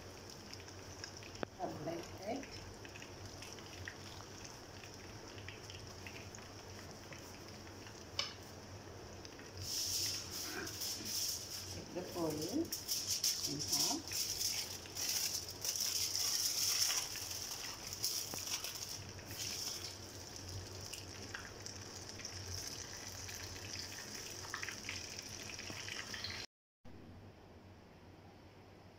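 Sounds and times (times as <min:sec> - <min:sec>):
aluminium foil crinkling: 0:09.6 - 0:21.5.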